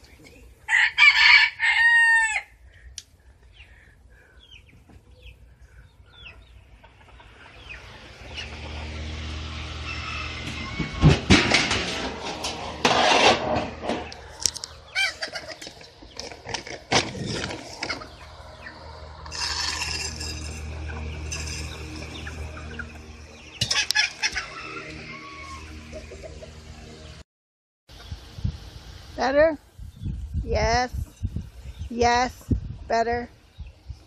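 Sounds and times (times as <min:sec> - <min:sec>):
loud chicken calls: 0:00.7 - 0:02.7, 0:09.6 - 0:11.5, 0:13.9 - 0:16.6, 0:17.3 - 0:26.5
chickens clucking: 0:04.4 - 0:12.8, 0:13.6 - 0:27.2
steady low hum: 0:11.4 - 0:27.2.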